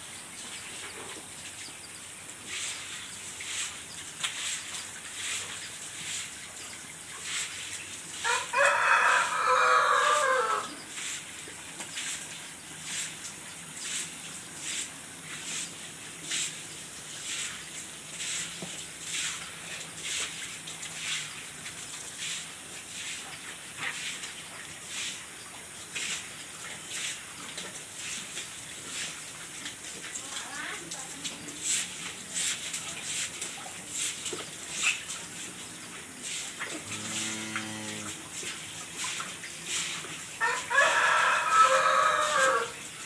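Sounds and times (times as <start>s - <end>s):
water running from hose: 0.0s - 43.0s
rooster crowing: 8.2s - 10.8s, 40.4s - 42.8s
stiff brush scrubbing rubber mat: 36.2s - 40.6s.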